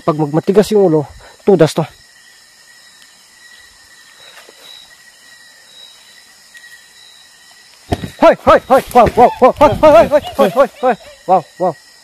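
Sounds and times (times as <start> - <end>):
night insects chirring: 0.0 - 12.0
leaves rustling: 0.1 - 12.0.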